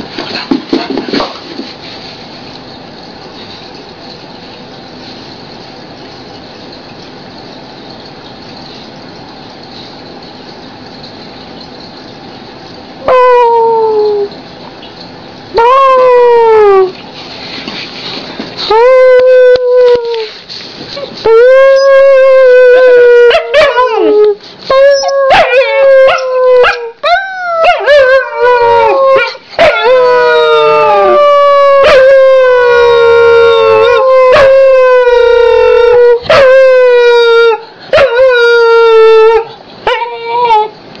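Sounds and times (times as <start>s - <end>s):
dog howling: 13.0s - 14.4s, 15.5s - 17.0s, 18.7s - 20.3s, 21.0s - 40.8s
dog yelping: 24.7s - 30.2s, 33.7s - 40.7s.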